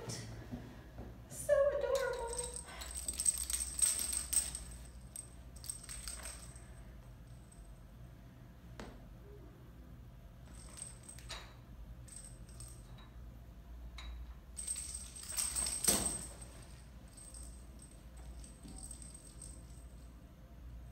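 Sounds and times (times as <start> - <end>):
small bell jingling: 1.9 - 7.7, 10.5 - 12.9, 14.6 - 20.2.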